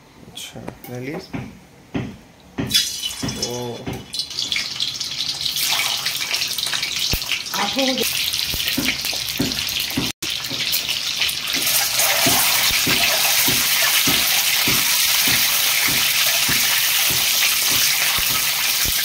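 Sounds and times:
eggs sizzling in hot oil: 2.7 - 19.0.

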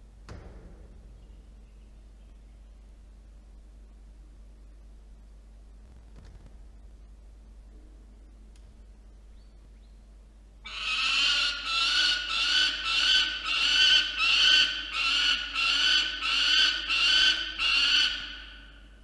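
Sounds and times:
falcon calling: 10.7 - 18.8.

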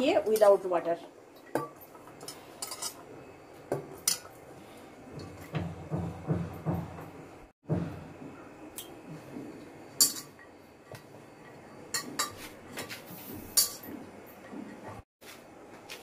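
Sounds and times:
utensils clinking on steel: 1.4 - 3.1, 10.0 - 10.5.

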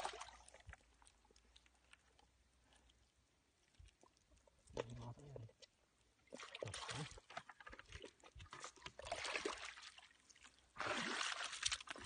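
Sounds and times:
splashing in muddy water: 0.0 - 1.2, 6.3 - 12.0.

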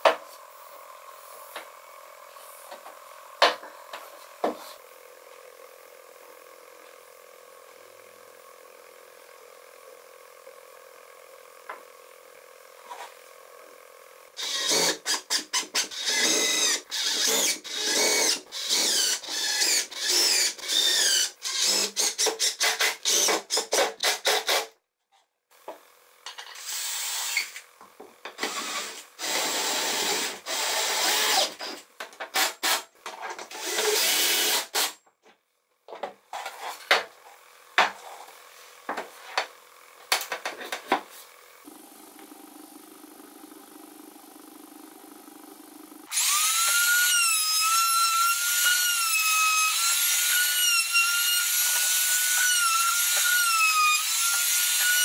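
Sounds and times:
cordless drill driving screws: 14.4 - 24.6, 26.5 - 27.7, 28.4 - 32.8, 33.5 - 35.0, 46.1 - 55.0.

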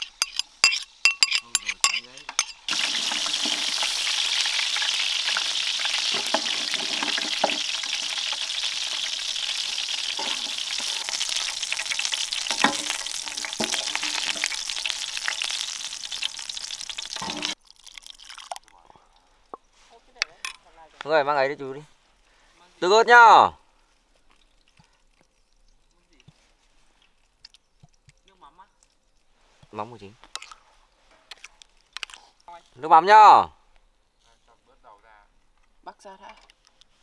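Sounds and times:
food sizzling in hot oil: 0.0 - 18.6.

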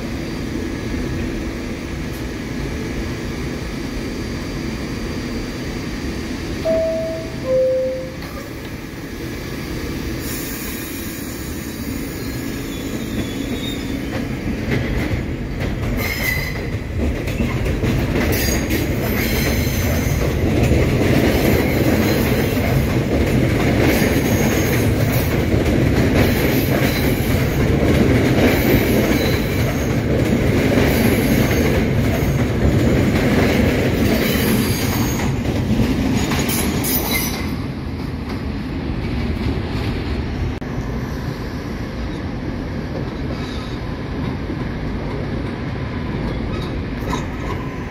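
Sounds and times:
subway train rumbling past: 0.0 - 47.9.

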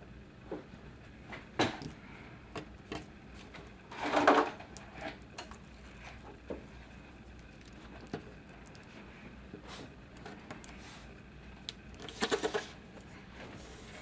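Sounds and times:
paper and plastic rustling: 12.0 - 12.8.

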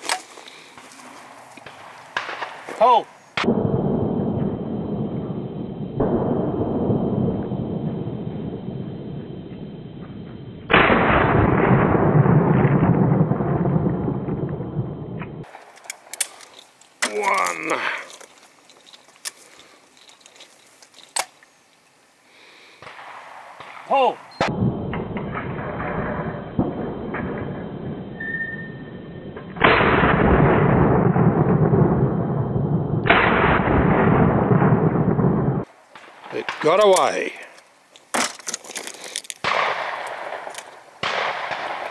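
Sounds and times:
shotgun blast: 10.7 - 14.4, 29.6 - 31.8, 33.0 - 35.6, 39.4 - 41.9.

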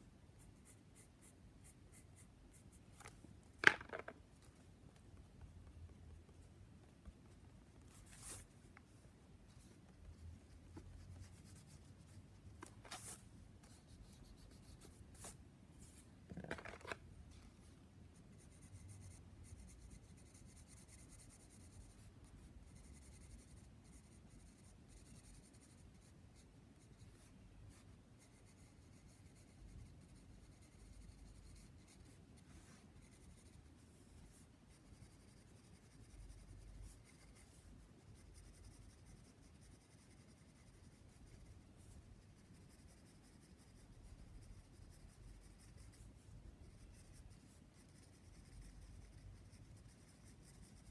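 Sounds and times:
pencil scratching on paper: 9.6 - 16.0, 18.3 - 50.9.

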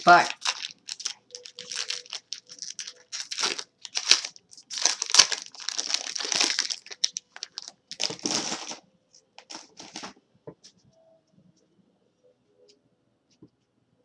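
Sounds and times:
foil wrapper tearing and crinkling: 0.0 - 8.8.

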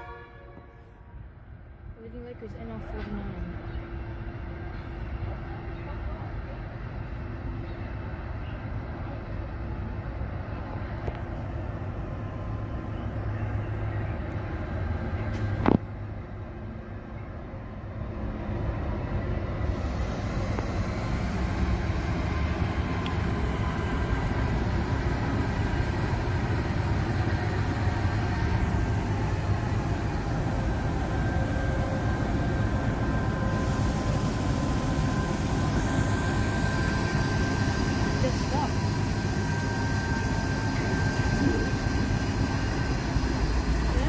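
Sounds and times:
locomotive engines humming: 0.0 - 44.0
steady whining tones: 20.1 - 44.0.

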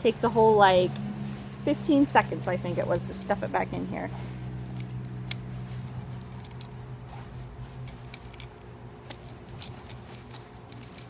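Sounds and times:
nylon fabric rustling: 0.0 - 11.0
steady low hum: 0.0 - 11.0
small clicks: 7.8 - 11.0.

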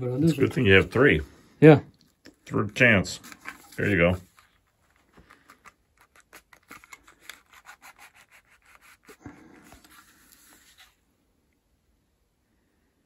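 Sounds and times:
fingers scratching paper box: 5.5 - 10.8.

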